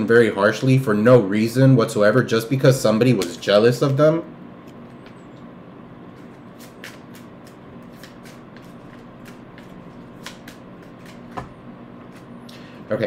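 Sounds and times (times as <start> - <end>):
faint hum: 0.0 - 13.0
cards being shuffled: 6.1 - 12.4.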